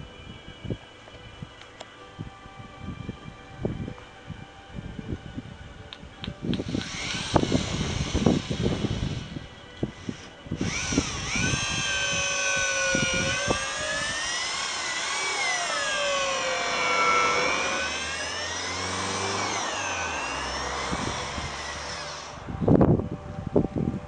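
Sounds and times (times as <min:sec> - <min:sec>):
power tool motor running: 0:06.6 - 0:22.5.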